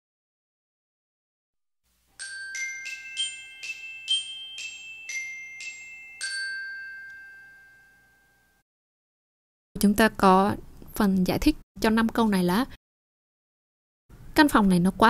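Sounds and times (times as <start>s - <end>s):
glockenspiel-like mallet jingle: 2.2s - 8.6s.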